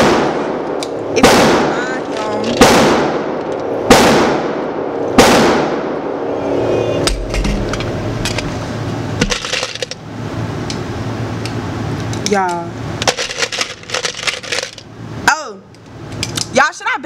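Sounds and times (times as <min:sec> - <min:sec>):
gunshots echoing indoors: 0:00.0 - 0:01.9, 0:02.5 - 0:06.3.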